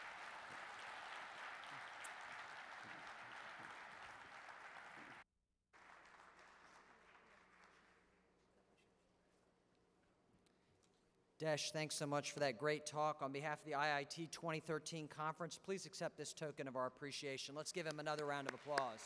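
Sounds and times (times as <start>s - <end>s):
audience applauding: 0.0s - 5.2s, 5.8s - 8.1s, 18.2s - 19.0s.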